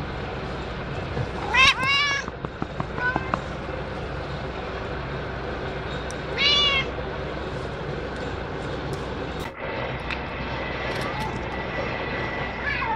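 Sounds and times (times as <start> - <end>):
low outdoor background hum: 0.0 - 12.9
cat meowing: 1.4 - 2.3, 6.4 - 6.9, 12.6 - 12.9.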